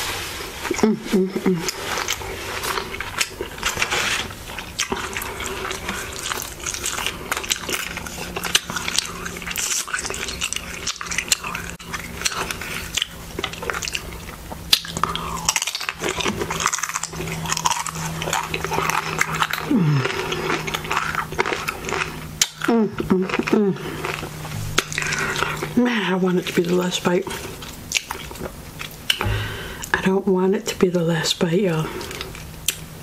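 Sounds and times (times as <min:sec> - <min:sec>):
steady low hum: 0:00.0 - 0:33.0
wet chewing: 0:01.5 - 0:30.1, 0:31.9 - 0:32.9
crunching chips: 0:01.6 - 0:29.7.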